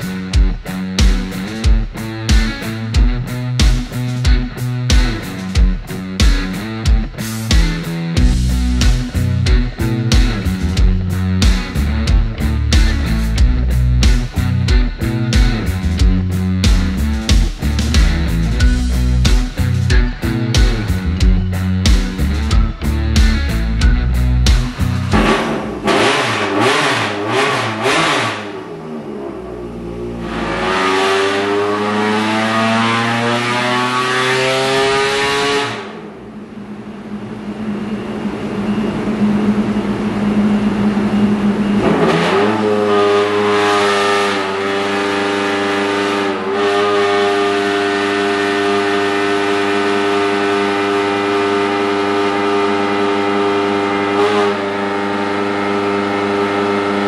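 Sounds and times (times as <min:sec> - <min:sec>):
race engine revving on dyno: 0:24.5 - 0:57.0.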